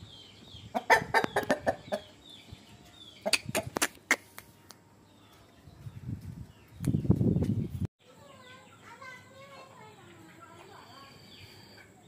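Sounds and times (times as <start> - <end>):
rooster clucking: 0.7 - 2.1, 3.2 - 4.4
faint high chirps: 8.2 - 12.0.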